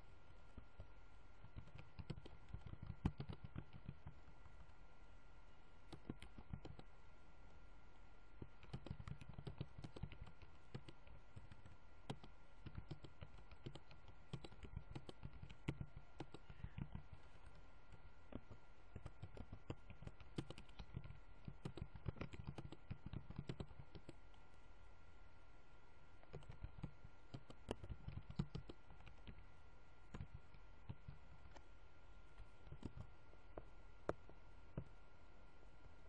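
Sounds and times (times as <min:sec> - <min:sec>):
low electrical hum: 0:00.0 - 0:36.0
keyboard and mouse clicking: 0:00.8 - 0:04.8, 0:05.8 - 0:06.9, 0:08.4 - 0:24.4, 0:26.2 - 0:29.4, 0:30.1 - 0:31.7, 0:32.3 - 0:35.0.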